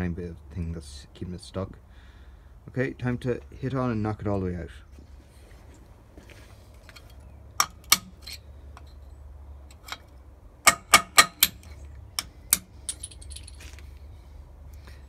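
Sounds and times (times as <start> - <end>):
hammer striking metal: 10.7 - 11.6.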